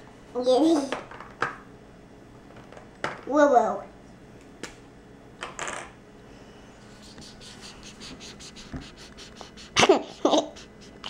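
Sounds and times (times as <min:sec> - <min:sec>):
marker scribbling on paper: 0:07.0 - 0:11.0.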